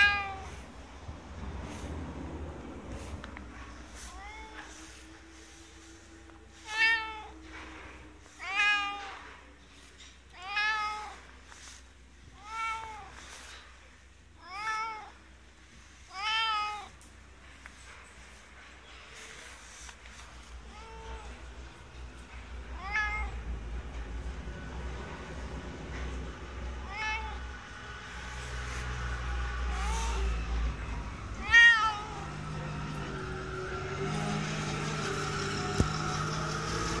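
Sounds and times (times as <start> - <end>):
cat meowing: 0.0 - 0.6, 3.5 - 5.5, 6.6 - 7.5, 8.3 - 9.3, 10.3 - 11.7, 12.3 - 13.3, 14.4 - 15.2, 16.1 - 16.9, 22.8 - 23.4, 26.8 - 27.7, 29.6 - 32.5.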